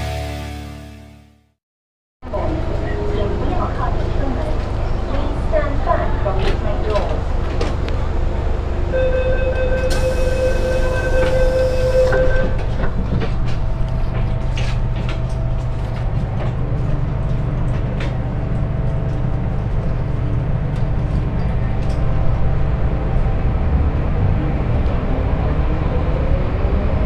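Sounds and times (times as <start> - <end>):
held warning tone: 8.9 - 12.8.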